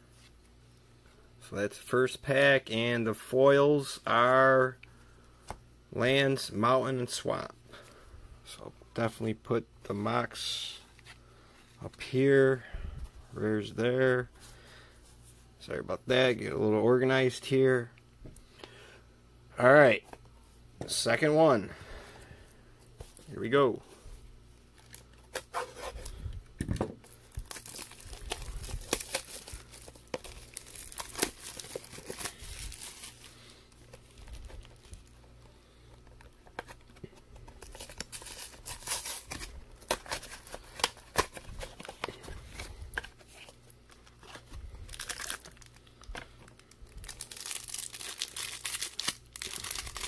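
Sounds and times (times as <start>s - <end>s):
packaging rustling: 24.8s - 50.0s
plastic wrap crinkling and tearing: 27.0s - 35.2s, 36.5s - 50.0s.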